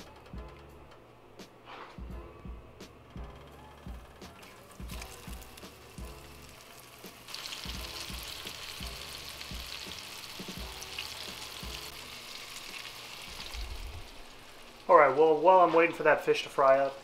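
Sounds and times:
fish sizzling in hot oil: 0:04.6 - 0:15.5.

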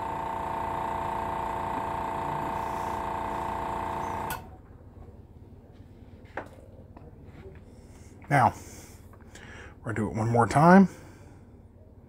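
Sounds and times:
compressor motor humming: 0:00.0 - 0:04.5.

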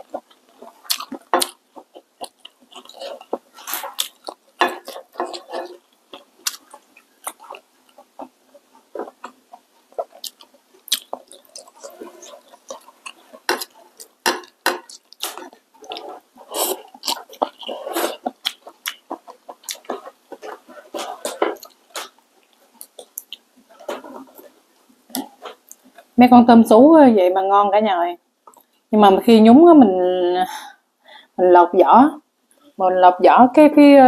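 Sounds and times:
wet chewing: 0:00.0 - 0:26.2.

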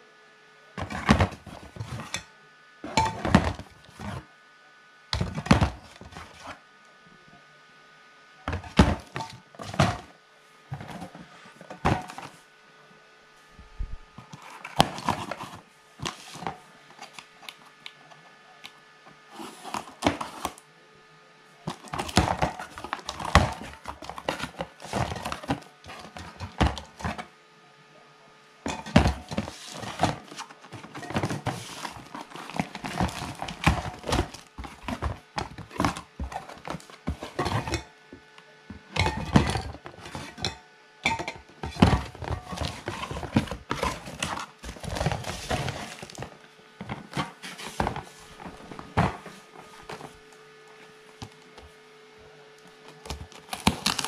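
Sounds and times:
cardboard flaps scraping and thumping: 0:00.8 - 0:02.1, 0:10.7 - 0:12.4, 0:28.7 - 0:37.8, 0:41.6 - 0:50.2.

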